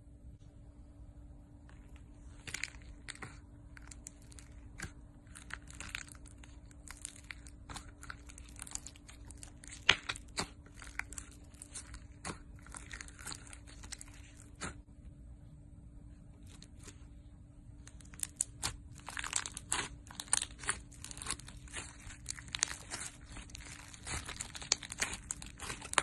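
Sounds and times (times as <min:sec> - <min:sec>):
slime squishing and popping: 0:02.3 - 0:14.9, 0:17.8 - 0:26.0.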